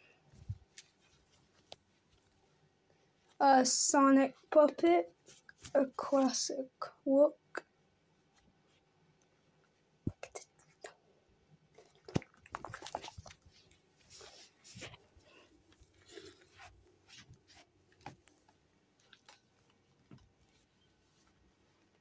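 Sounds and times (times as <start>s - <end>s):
rustling: 0.2s - 3.4s, 11.8s - 22.0s.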